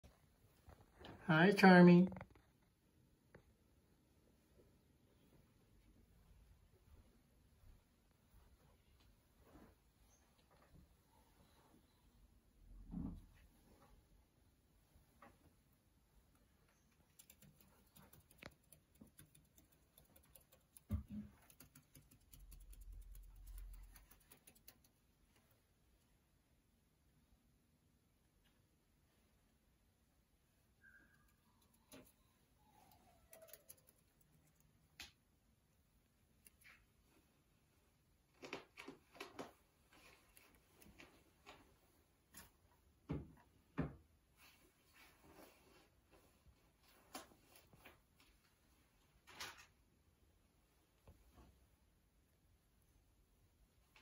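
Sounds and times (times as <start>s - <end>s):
faint light ticks and patter: 5.2s - 11.8s, 14.9s - 25.6s, 31.3s - 35.2s, 38.3s - 42.8s.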